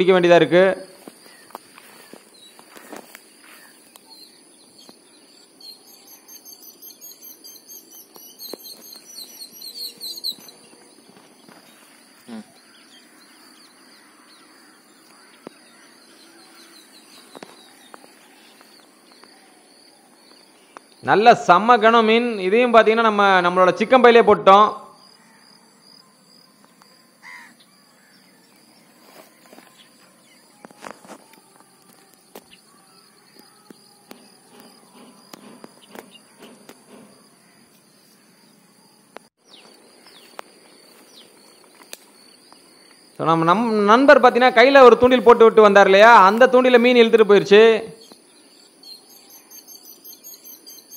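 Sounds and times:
insects trilling: 0.0 - 50.9
footsteps through dry brush: 0.9 - 3.9, 10.4 - 12.3, 28.6 - 32.7
small birds chirping: 1.0 - 22.5, 25.0 - 45.3, 46.0 - 50.9
bird chirps: 1.2 - 21.1, 48.0 - 50.9.

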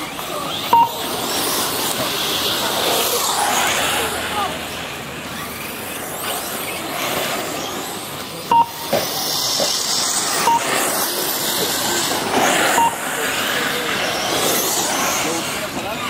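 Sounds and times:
electric motors whining: 0.0 - 16.0
short high beeps: 0.7 - 1.0, 8.5 - 9.0, 10.4 - 10.8, 12.7 - 13.0.

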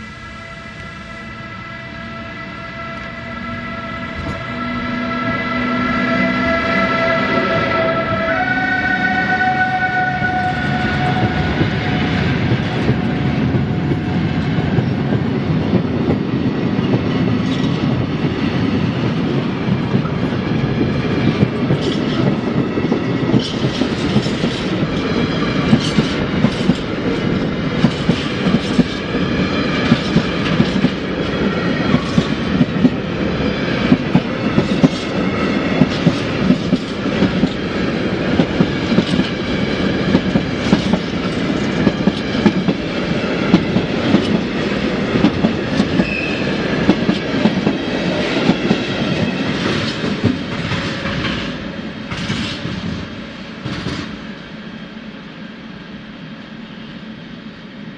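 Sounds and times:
freight train rumbling past: 0.0 - 57.9
high wheel squeal: 0.5 - 12.0, 45.9 - 46.6
wheels clicking over rail joints: 21.2 - 33.0, 52.1 - 53.0.

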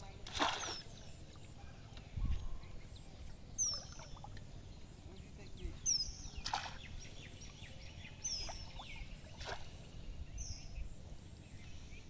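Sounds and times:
water sloshing and splashing: 0.2 - 1.5.

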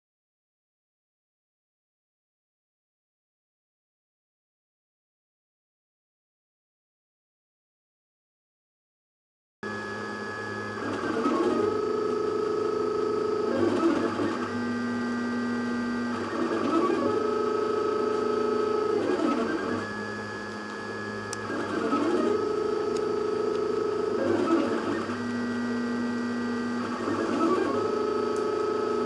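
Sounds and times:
stepper motors whining: 9.7 - 29.0.

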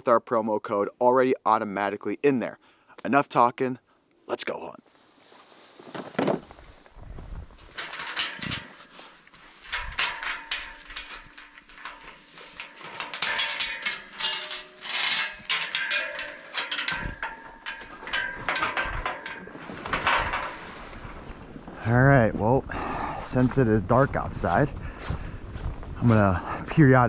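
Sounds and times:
chain rattling against metal gate: 7.7 - 21.2
metallic clanks and ringing: 7.7 - 21.3.

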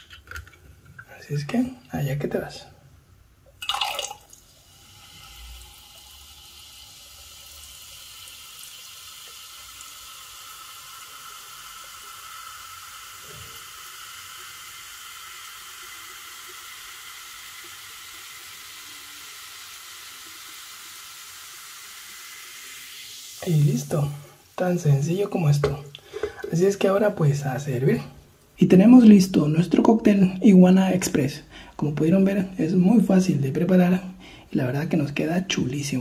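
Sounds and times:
soda pouring into glass: 3.5 - 27.6
soda fizzing: 3.5 - 30.3.

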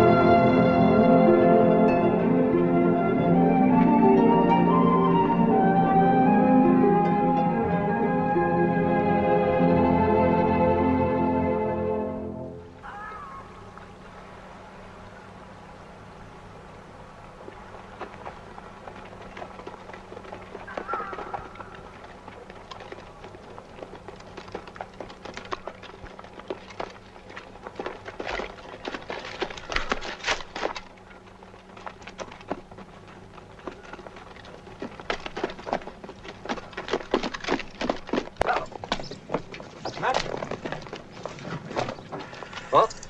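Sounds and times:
footsteps on stony ground: 17.1 - 43.0.

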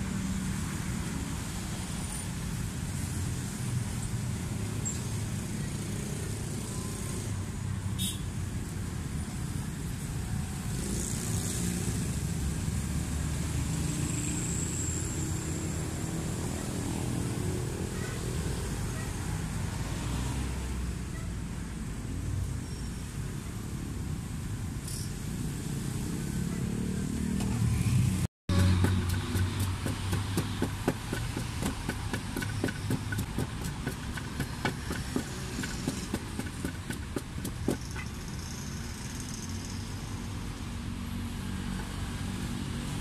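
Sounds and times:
road traffic rumble: 0.0 - 43.0
vehicles passing: 0.0 - 43.0.

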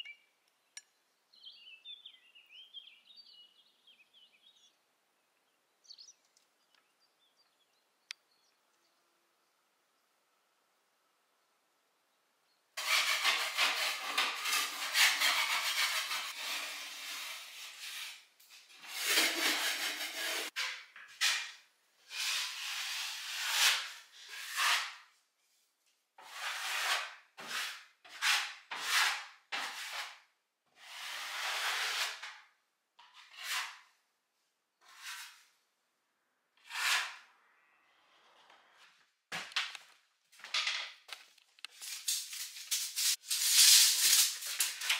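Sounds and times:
taping knife scraping compound: 12.8 - 25.2, 26.2 - 34.0, 34.8 - 35.6, 36.6 - 38.9, 41.7 - 44.9.

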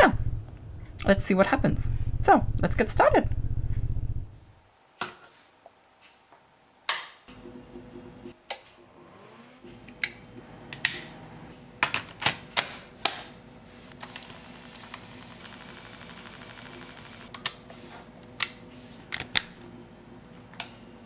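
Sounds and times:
low steady hum: 0.0 - 4.6.

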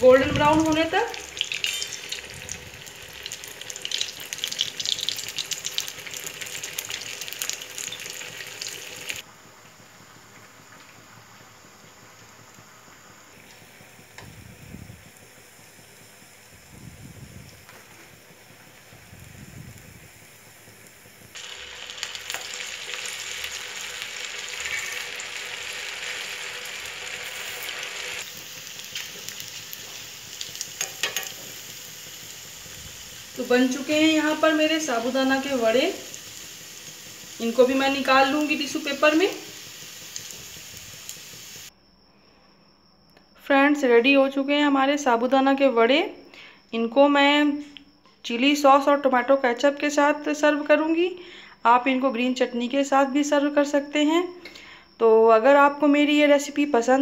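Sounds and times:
food deep-frying in oil: 0.0 - 41.7
faint hiss: 8.3 - 43.4.

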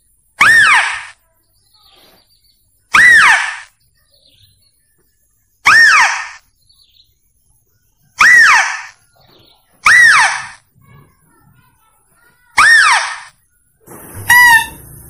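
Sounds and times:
lure call squeal: 0.4 - 1.2, 2.9 - 3.8, 5.6 - 6.4, 8.2 - 9.0, 9.8 - 10.6, 12.6 - 15.0.

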